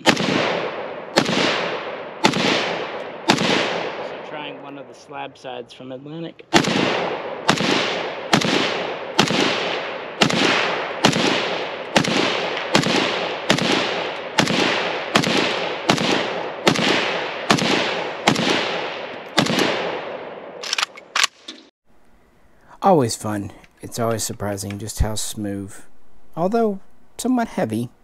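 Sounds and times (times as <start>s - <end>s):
rifle shots with ringing echo: 0.0s - 5.3s, 6.5s - 21.5s.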